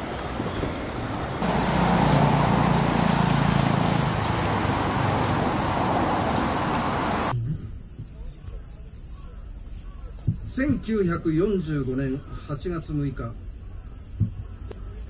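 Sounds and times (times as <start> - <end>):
city traffic rumble: 0.0 - 7.4.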